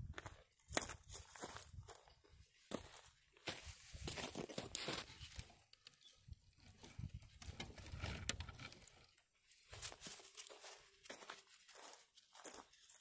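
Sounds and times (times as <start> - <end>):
footsteps on gravelly dirt: 0.0 - 5.3, 9.6 - 13.0.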